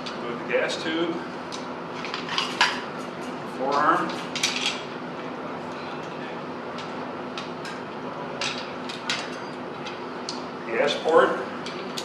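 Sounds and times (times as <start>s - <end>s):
room hum: 0.0s - 12.0s.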